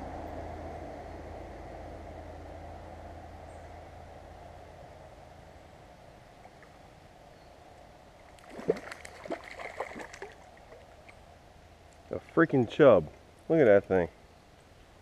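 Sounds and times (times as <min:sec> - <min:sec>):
faint stream flowing: 0:03.3 - 0:15.0
fish splashing at water surface: 0:08.2 - 0:10.9.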